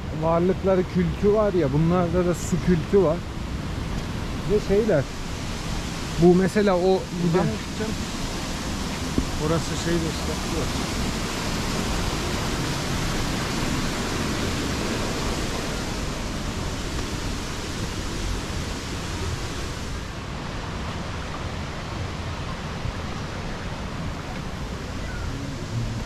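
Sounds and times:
river water rushing: 0.0s - 26.0s.

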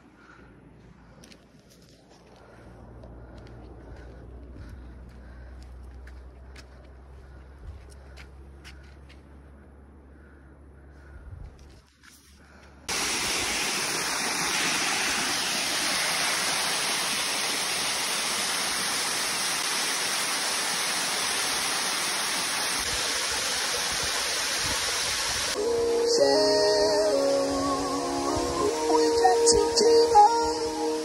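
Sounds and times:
fast-flowing water rushing: 12.9s - 31.0s.

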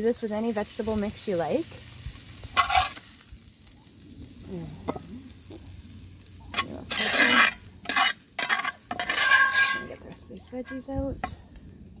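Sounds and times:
low sizzle from hot pan: 0.0s - 12.0s
metal spatula scraping skillet: 2.5s - 3.2s, 6.5s - 11.4s.

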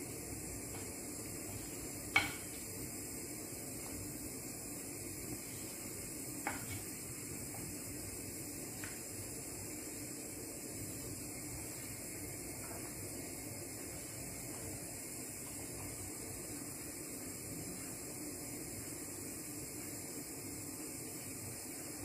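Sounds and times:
faint steady hiss: 0.0s - 22.0s
spoon knocking against pan: 2.1s - 2.5s.

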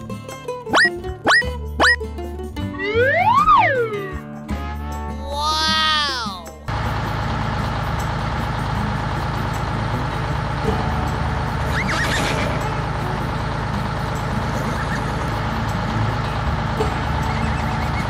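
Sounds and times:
truck engine running: 0.0s - 5.2s, 6.4s - 18.0s
horse whinnying: 11.9s - 12.6s.

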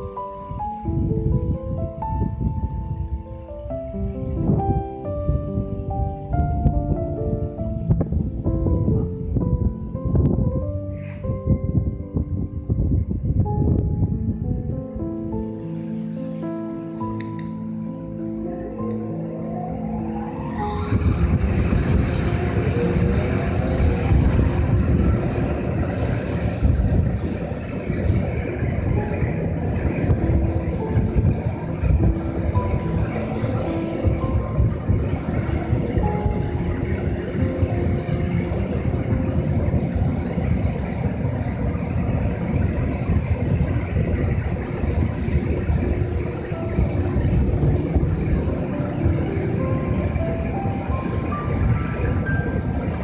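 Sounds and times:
locomotive inverter whine: 0.0s - 53.0s
low running noise: 0.0s - 53.0s
high steady tone: 15.0s - 53.0s.

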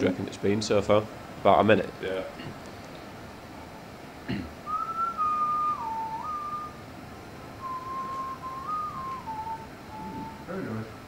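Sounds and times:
gas stove burner hissing: 0.0s - 11.0s
person whistling a tune: 4.7s - 6.8s, 7.6s - 10.6s.

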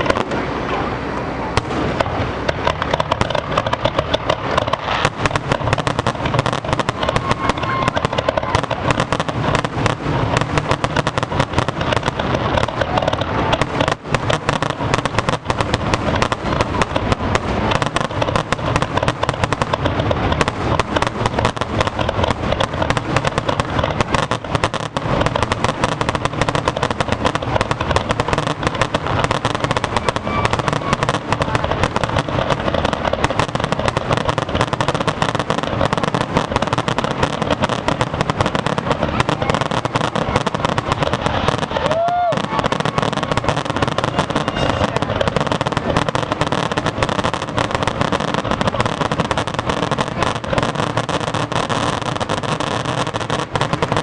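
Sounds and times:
fireworks booming and crackling: 0.0s - 54.0s.

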